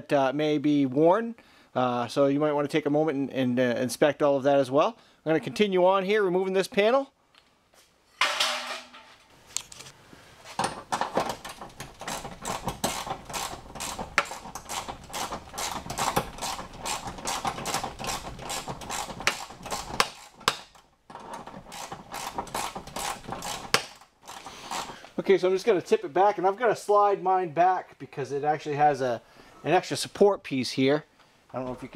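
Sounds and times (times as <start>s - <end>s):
ratchet wrench clicking: 12.0s - 20.6s.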